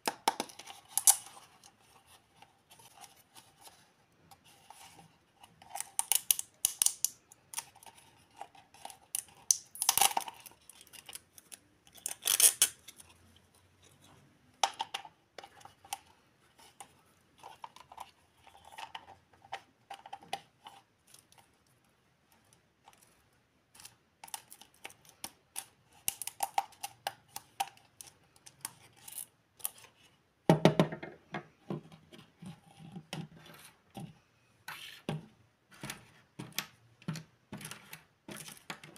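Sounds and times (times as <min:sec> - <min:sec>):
plastic toy pieces clicking: 0:05.7 - 0:07.7, 0:08.8 - 0:11.2, 0:11.9 - 0:12.8
plastic toys knocking on table: 0:30.5 - 0:31.5.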